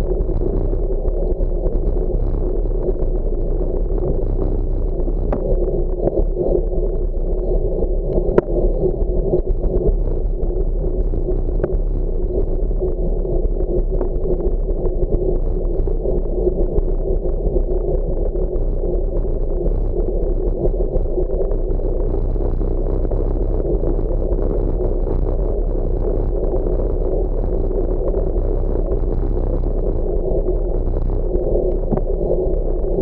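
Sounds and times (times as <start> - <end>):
muffled wind: 0.0 - 33.0.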